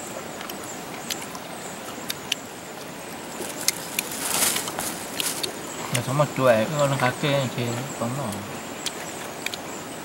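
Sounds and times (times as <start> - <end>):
stream water rushing: 0.0 - 10.0
plastic bag crinkling: 3.4 - 5.6.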